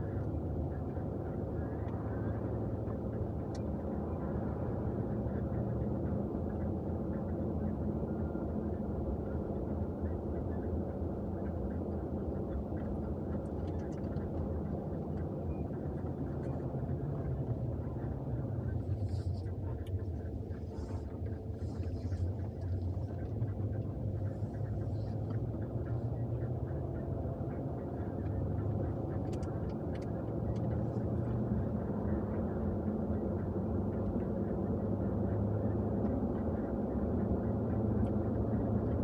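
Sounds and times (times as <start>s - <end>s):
car engine drone: 0.0s - 39.0s
road and tyre noise: 0.0s - 39.0s.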